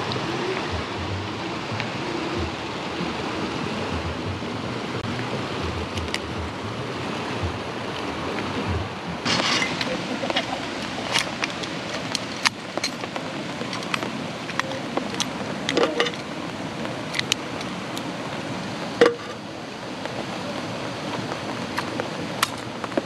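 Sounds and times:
background hiss: 0.0s - 23.0s
metal lantern clicks and rattles: 17.2s - 17.4s.

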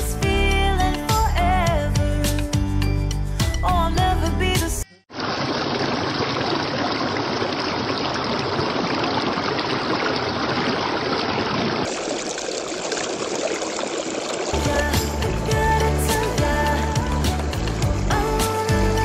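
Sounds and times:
water splashing over rocks: 5.1s - 18.7s.

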